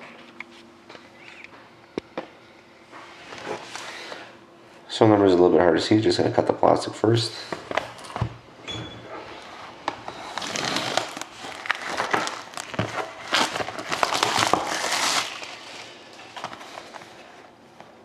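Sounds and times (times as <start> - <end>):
plastic shrink wrap crinkling: 9.8 - 17.2.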